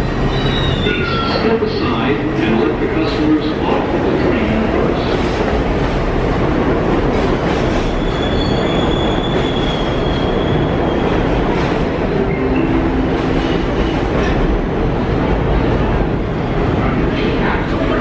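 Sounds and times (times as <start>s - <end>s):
high-pitched squeal: 0.0s - 1.7s
subway train wheels rumbling: 0.0s - 18.0s.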